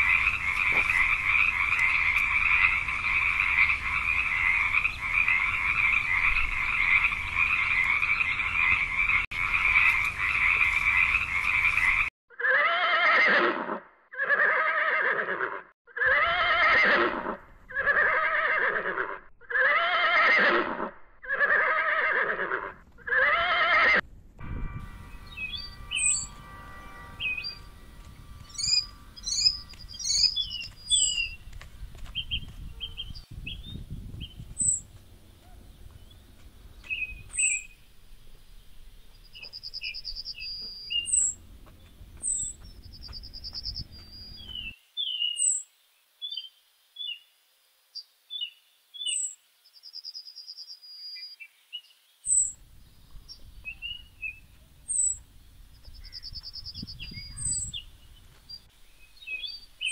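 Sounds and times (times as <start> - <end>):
horse neighing: 12.4 - 24.0
bird chirps and whistles: 25.2 - 26.3, 28.5 - 31.4, 36.9 - 37.8, 39.4 - 41.4, 56.0 - 57.9.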